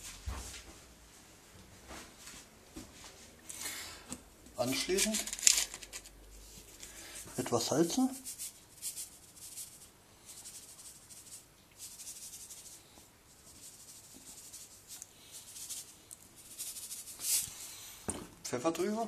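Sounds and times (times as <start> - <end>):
salt shaken from canister: 6.8 - 12.8, 13.4 - 17.5.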